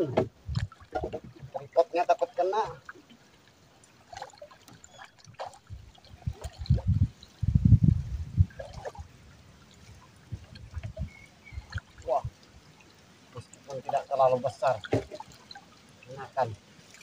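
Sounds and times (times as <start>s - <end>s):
water splashing and trickling: 0.0s - 17.0s
heavy splashes: 4.0s - 7.2s, 8.4s - 17.0s.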